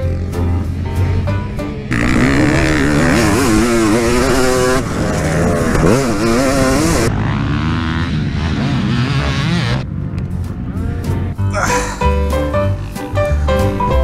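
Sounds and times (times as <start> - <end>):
dirt bike engine revving: 1.8 - 10.0.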